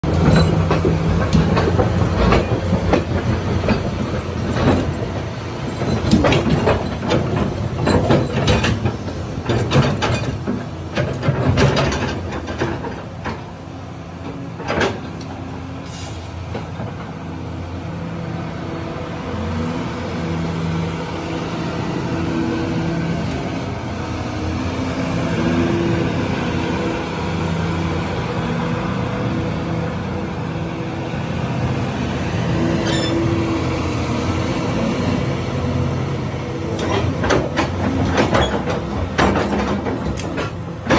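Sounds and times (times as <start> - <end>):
excavator engine and hydraulics: 0.0 - 40.9
sharp metal knocks and clanks: 0.1 - 13.4, 36.8 - 40.9.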